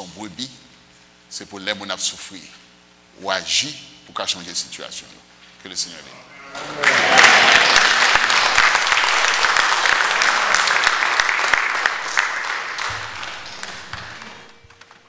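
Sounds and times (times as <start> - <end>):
congregation applauding: 6.5 - 15.0.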